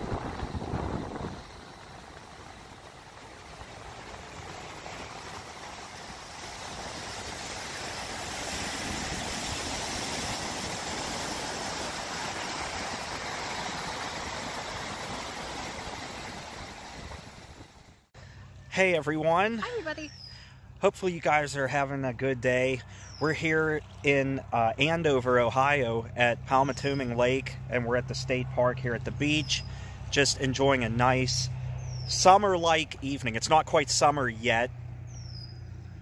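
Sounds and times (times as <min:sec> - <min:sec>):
waves breaking on a beach: 0:00.0 - 0:18.1.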